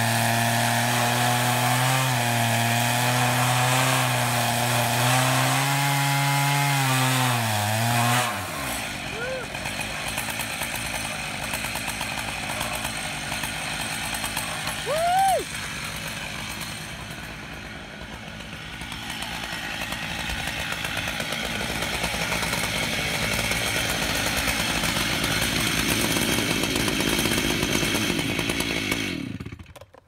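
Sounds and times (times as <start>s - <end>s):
chainsaws running at high revs: 0.0s - 30.0s.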